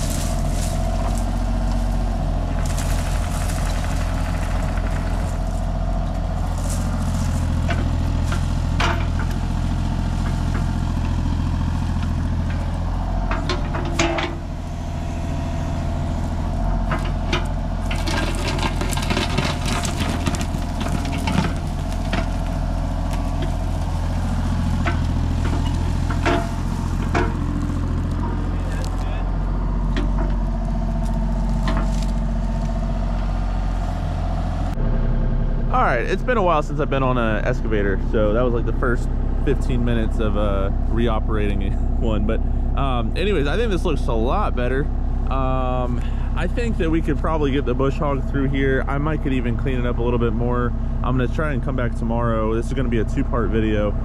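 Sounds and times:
bucket tearing through brush: 0.0 - 5.7
excavator diesel engine running: 0.0 - 54.0.

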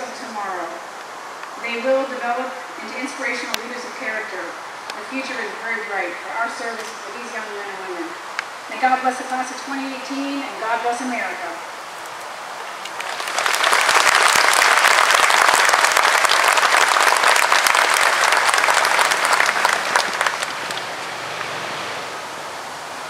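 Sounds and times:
audience applauding: 12.8 - 22.0.

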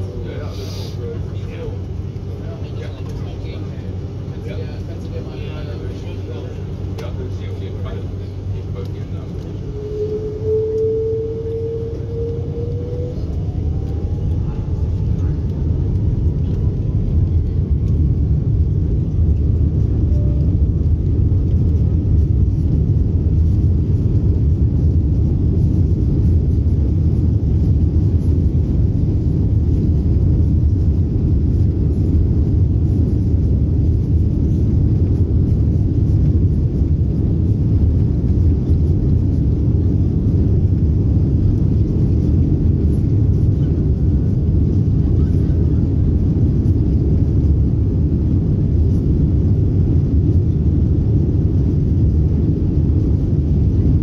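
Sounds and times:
jet airliner cabin rumble: 0.0 - 54.0.

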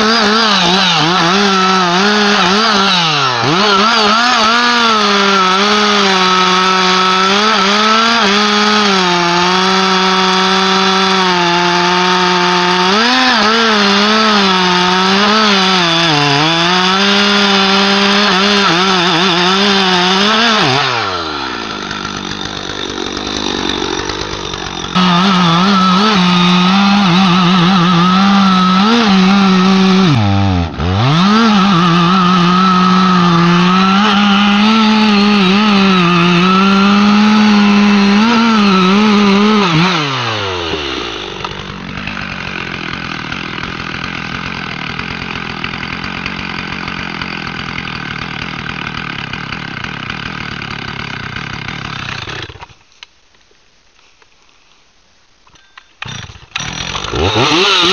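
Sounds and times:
chainsaw cutting wood: 0.0 - 53.0, 55.6 - 57.9.

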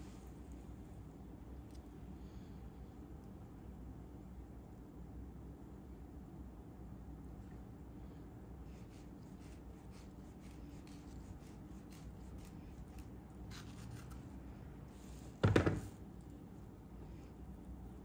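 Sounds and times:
loud thump: 15.4 - 15.9.

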